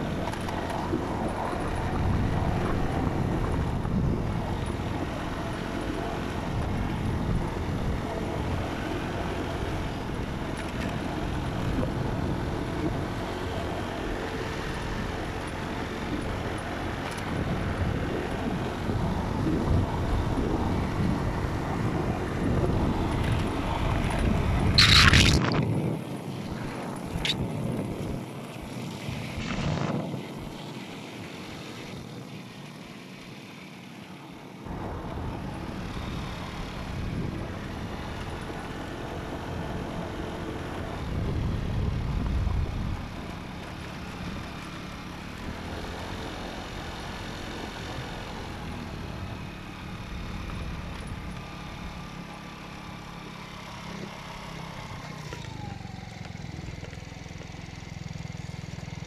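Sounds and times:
wind buffeting microphone: 0.0s - 16.5s, 17.2s - 30.6s, 34.7s - 44.3s
vehicle engine and road rumble: 0.0s - 59.0s.

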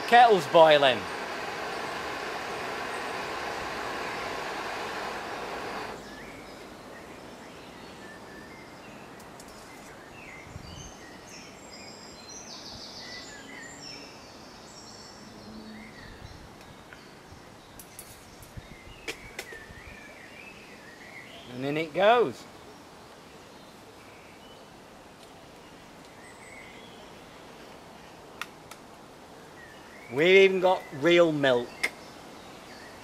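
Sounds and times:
gas stove burner hissing: 0.0s - 6.0s
birds chirping: 0.0s - 22.9s, 29.6s - 33.0s.

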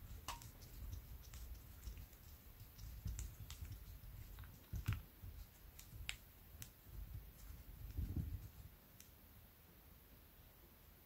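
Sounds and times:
small reel parts clicking: 0.0s - 6.8s.

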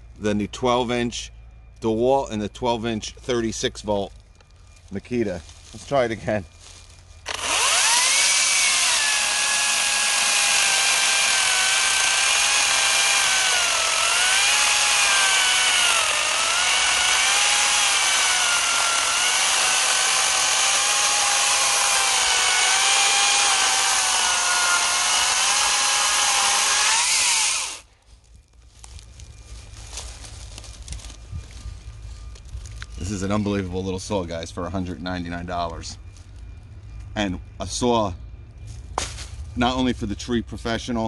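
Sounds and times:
electric chainsaw cutting log: 7.3s - 27.9s.

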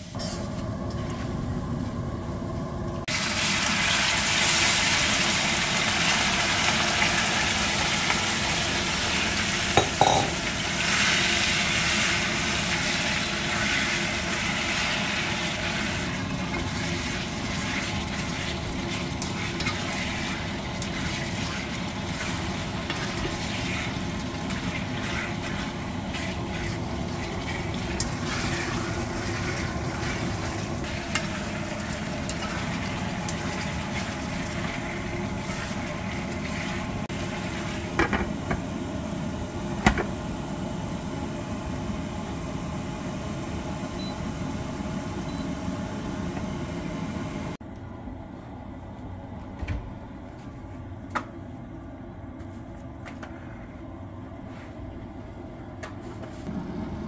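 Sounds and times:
meat sizzling in a frying pan: 3.1s - 38.0s
glass lid clinking on pan: 9.8s - 10.4s
spatula stirring in pan: 15.8s - 36.9s.

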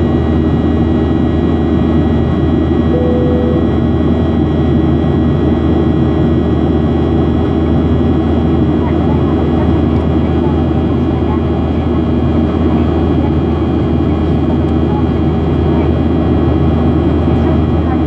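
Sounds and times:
jet engines roaring in cabin: 0.0s - 18.0s
short single tone: 2.9s - 4.0s.

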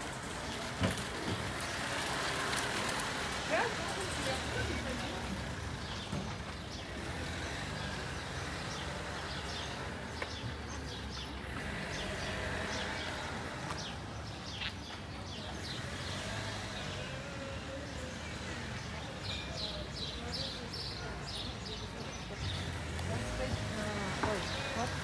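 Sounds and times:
city street hum: 0.0s - 25.0s
birds chirping: 0.4s - 25.0s.

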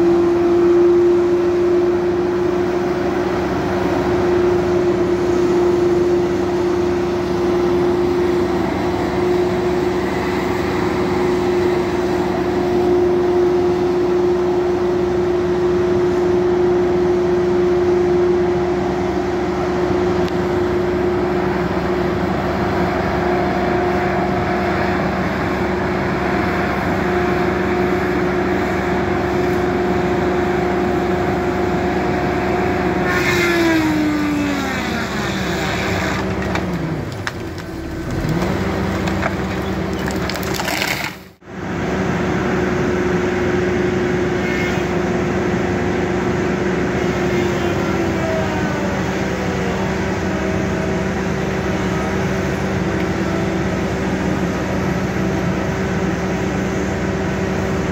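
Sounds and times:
forestry machine engine running: 0.0s - 57.9s
wood cracking: 34.6s - 41.4s.

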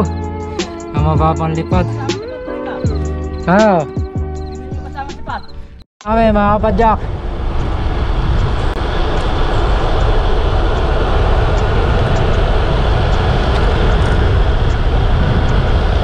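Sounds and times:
road noise: 0.0s - 16.0s
wind rumble: 4.4s - 16.0s.

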